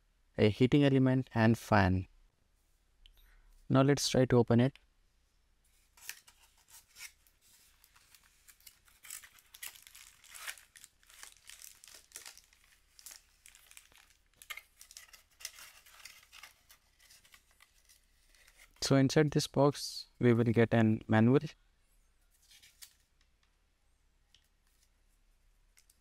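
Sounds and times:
plastic bag crinkling: 7.7s - 18.6s.

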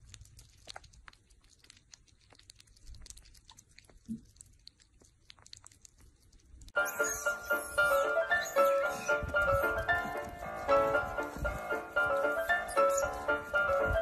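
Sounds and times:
wet licking clicks: 0.0s - 6.8s.

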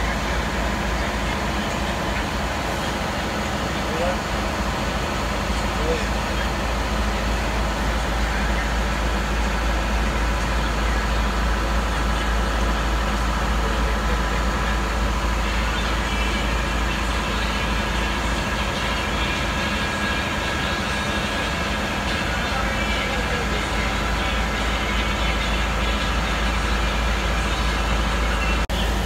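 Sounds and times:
diesel engine running: 0.0s - 29.0s.

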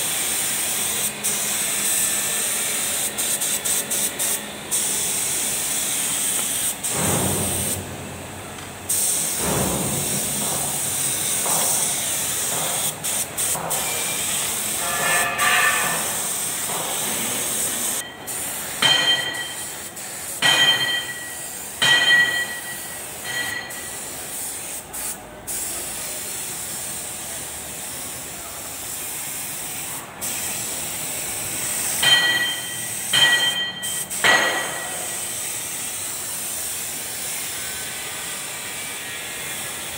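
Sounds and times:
spray gun hissing: 0.0s - 39.9s
short shrill tones: 14.8s - 16.2s.

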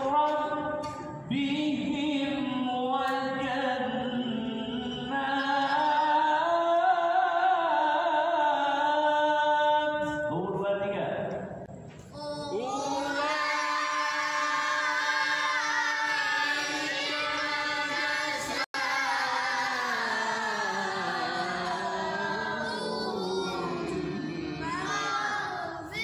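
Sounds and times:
person chanting melodically: 12.2s - 25.8s.

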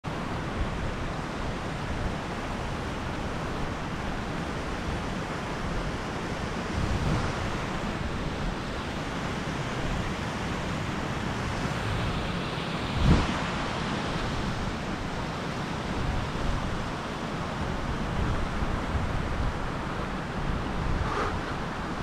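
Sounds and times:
stream and waterfall rushing: 0.1s - 22.0s
wind buffeting microphone: 0.4s - 10.4s, 11.0s - 22.0s.

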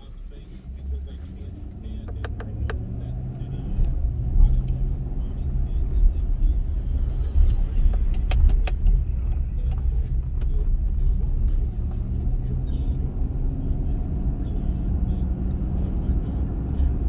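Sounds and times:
car engine and tyre rumble: 0.0s - 17.0s
sharp clicks or rattles: 8.0s - 9.0s.

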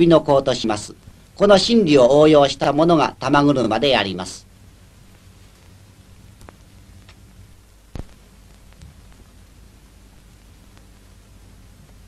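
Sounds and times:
soundtrack hiss and hum: 0.0s - 12.0s.

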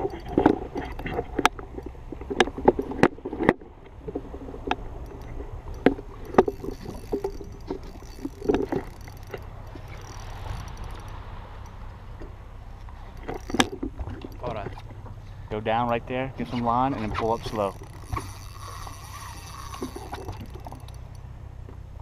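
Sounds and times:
low steady rumble: 0.0s - 22.0s
water splashing: 16.5s - 21.2s.

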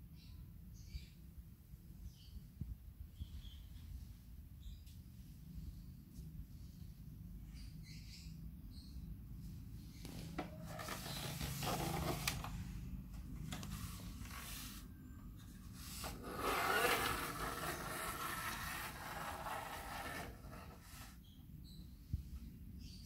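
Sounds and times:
plastic toy parts scraping: 10.6s - 12.5s, 15.9s - 21.2s.

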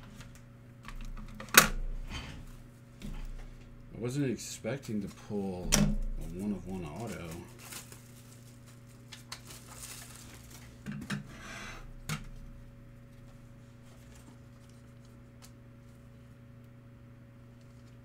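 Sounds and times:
low electrical hum: 0.0s - 18.0s
cards rustling: 6.2s - 10.8s.

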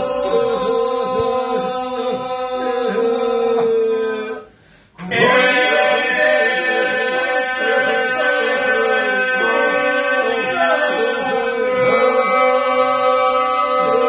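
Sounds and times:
held vocal drone: 0.0s - 14.0s
men singing a cappella: 0.0s - 14.0s.

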